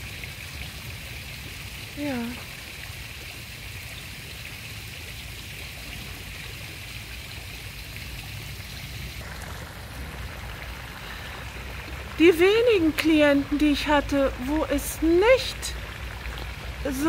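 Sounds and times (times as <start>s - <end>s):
fountain water splashing: 0.0s - 17.0s.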